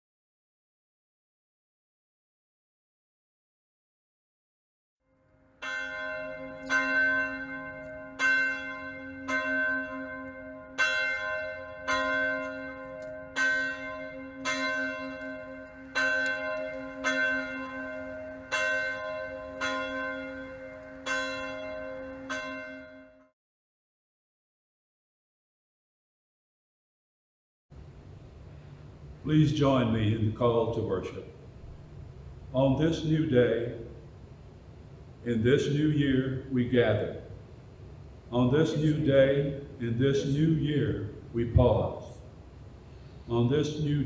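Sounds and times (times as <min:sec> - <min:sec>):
church bell ringing: 0:05.1 - 0:23.3, 0:38.4 - 0:42.2.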